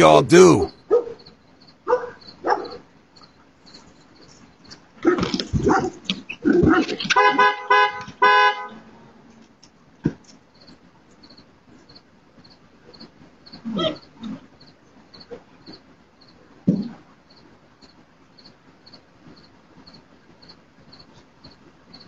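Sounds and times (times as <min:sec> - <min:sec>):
dog barking: 0:00.8 - 0:01.2, 0:01.8 - 0:02.9, 0:05.0 - 0:06.0
car horn short blasts: 0:07.2 - 0:08.7.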